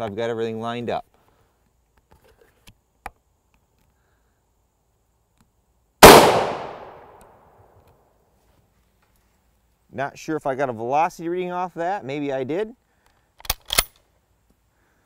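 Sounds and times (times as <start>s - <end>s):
rifle shot: 6.0s - 7.4s.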